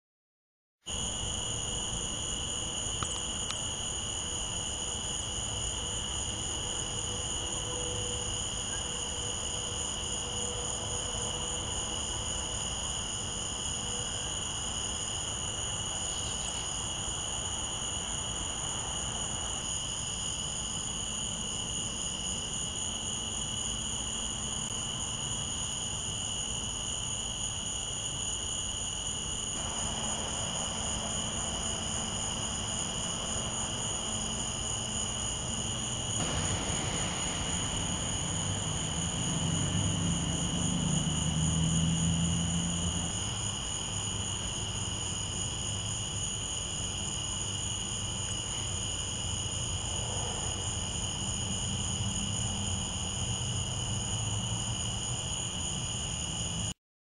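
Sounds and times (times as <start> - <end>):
crickets trilling: 0.9 - 56.7
low background hiss: 29.6 - 41.1
low noise: 29.6 - 43.3.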